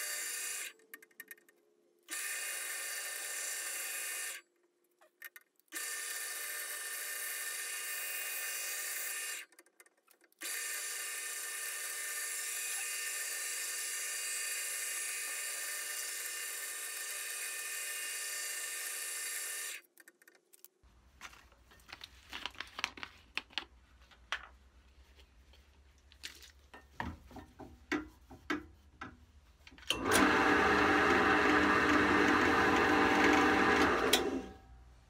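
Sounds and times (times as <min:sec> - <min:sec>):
drill press motor running: 0:29.9 - 0:34.6.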